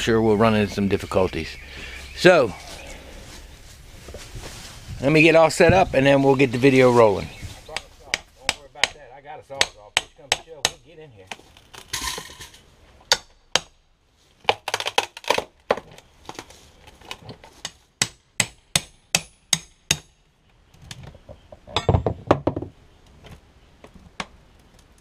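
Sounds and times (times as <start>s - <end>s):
metal tool knocking on wood: 21.8s - 22.7s.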